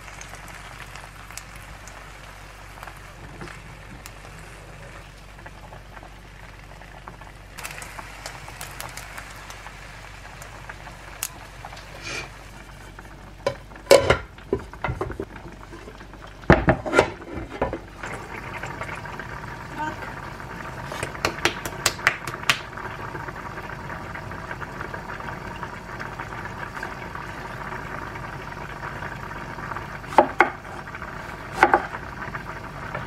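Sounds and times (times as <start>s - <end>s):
food frying in a pan: 0.0s - 33.0s
pan and plate clattering: 13.5s - 17.9s
wooden spoon scraping a pan: 16.6s - 17.9s.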